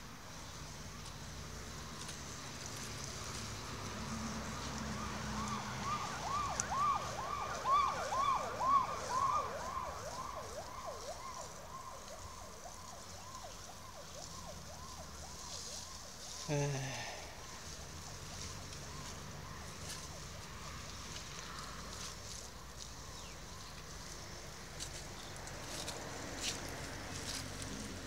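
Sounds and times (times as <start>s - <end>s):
siren yelping: 4.8s - 20.4s.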